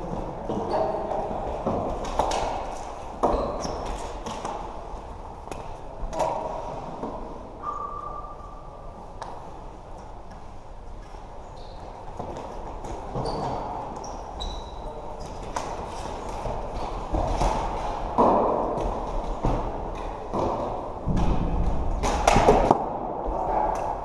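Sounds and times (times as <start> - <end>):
shoe squeaks: 0.6 - 1.1, 3.3 - 4.0, 11.4 - 12.0, 13.1 - 15.4
thuds: 20.4 - 22.7.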